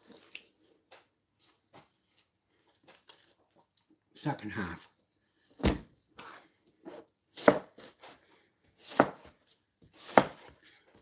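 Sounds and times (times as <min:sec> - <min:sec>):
knife chopping on cutting board: 0:07.3 - 0:07.9, 0:08.8 - 0:09.3, 0:09.9 - 0:10.5.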